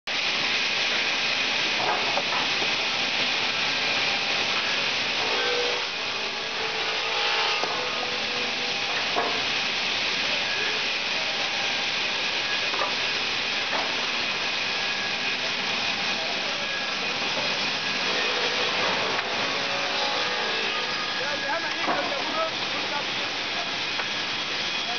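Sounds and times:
saw cutting timber board: 0:04.1 - 0:09.6, 0:12.6 - 0:24.9.

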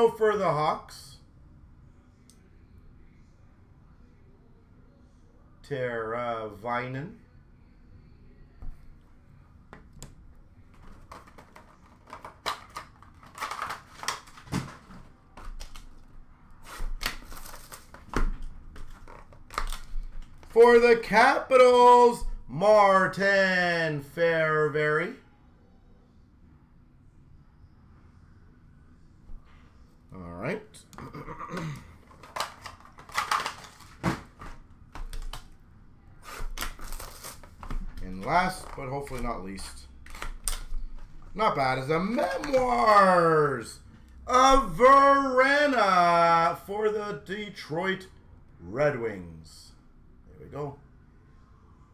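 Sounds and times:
clicks taps and rustles of boxes: 0:09.8 - 0:15.9.

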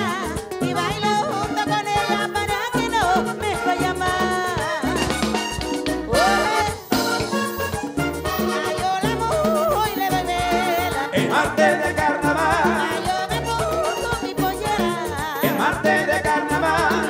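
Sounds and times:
accordion melody: 0:00.0 - 0:17.0
conga rhythm: 0:00.0 - 0:17.0
electric bass: 0:00.0 - 0:17.0.

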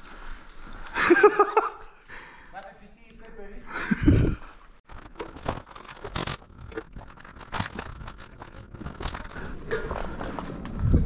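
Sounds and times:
footsteps crunching on rubble: 0:04.4 - 0:11.0.

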